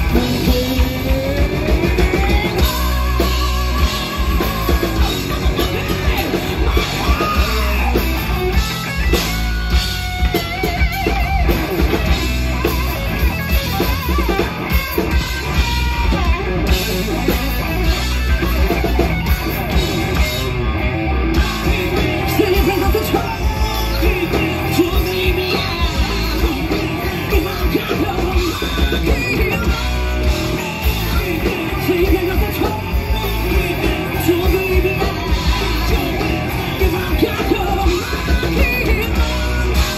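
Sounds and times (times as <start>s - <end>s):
woman singing lead vocal: 0.0s - 8.0s, 21.9s - 39.9s
drum kit: 0.0s - 39.9s
electric bass: 0.0s - 39.9s
electric guitar: 0.0s - 39.9s.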